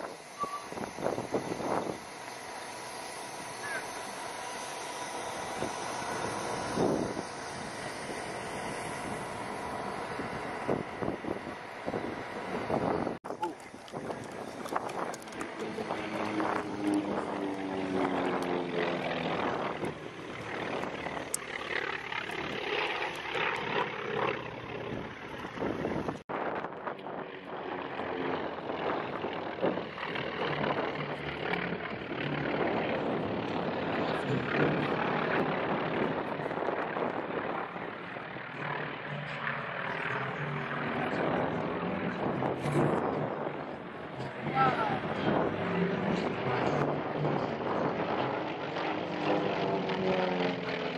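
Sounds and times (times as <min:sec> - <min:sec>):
propeller aircraft engine droning: 0:00.0 - 0:50.9
wind rushing: 0:04.8 - 0:13.2.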